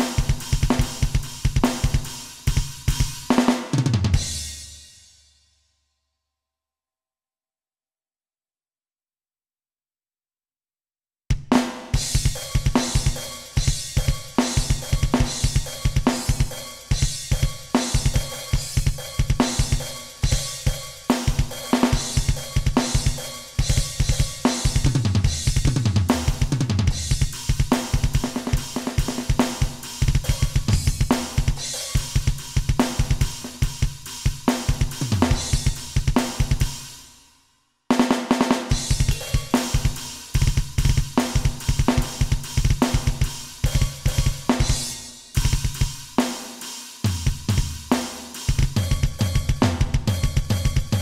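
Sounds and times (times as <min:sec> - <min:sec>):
hi-hat and cymbals: 0:00.0 - 0:03.6, 0:11.9 - 0:37.1, 0:38.6 - 0:51.0.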